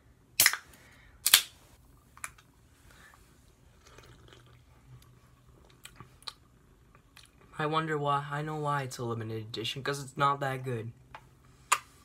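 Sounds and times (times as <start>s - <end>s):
soda can popping open: 0.4s - 0.6s, 1.2s - 1.5s
sipping and swallowing: 3.7s - 7.5s.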